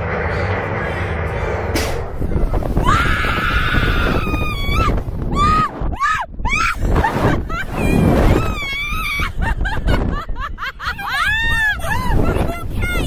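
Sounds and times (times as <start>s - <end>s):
low rumble: 0.0s - 13.0s
wind rushing over microphone: 0.6s - 13.0s
woman screaming: 2.8s - 6.8s, 11.0s - 13.0s.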